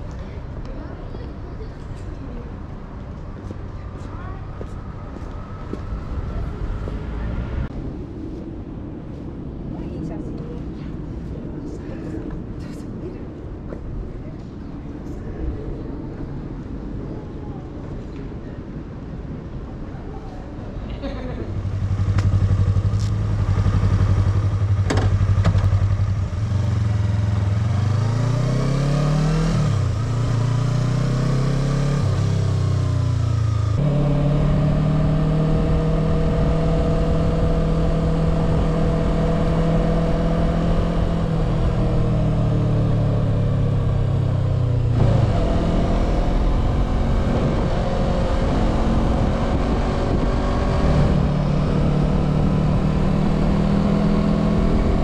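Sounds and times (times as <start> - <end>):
motorcycle engine revving: 21.5 - 55.0.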